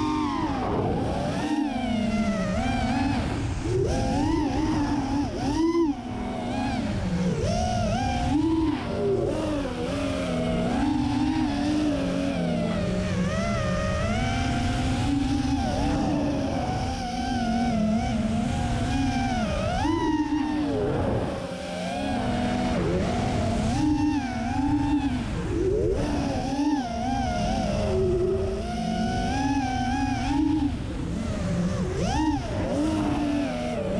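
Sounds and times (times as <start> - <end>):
drone motors whining: 0.0 - 33.9.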